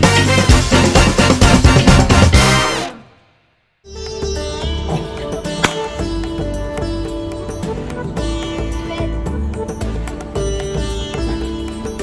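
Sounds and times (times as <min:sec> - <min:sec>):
intro music with drum beat: 0:00.0 - 0:02.8
background music: 0:00.0 - 0:03.2, 0:03.9 - 0:12.0.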